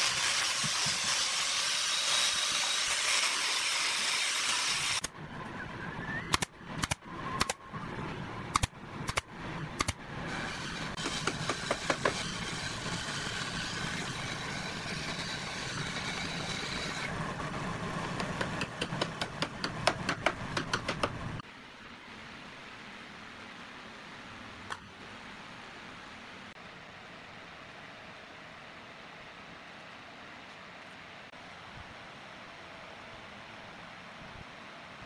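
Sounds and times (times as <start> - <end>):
nail gun firing: 6.3 - 7.6, 8.5 - 9.2
steady machine noise: 6.6 - 19.9.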